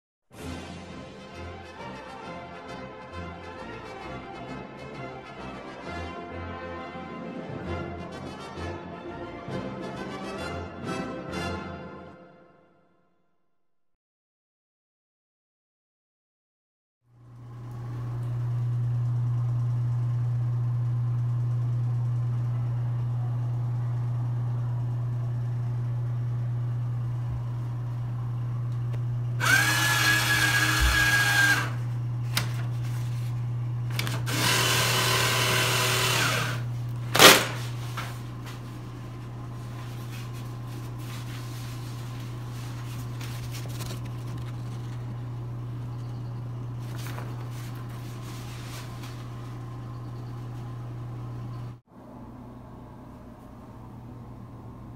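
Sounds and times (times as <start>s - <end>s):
paper towel dispenser motor whine: 17.1s - 51.8s
steady low hum: 17.2s - 54.9s
sharp crack: 37.1s - 37.8s.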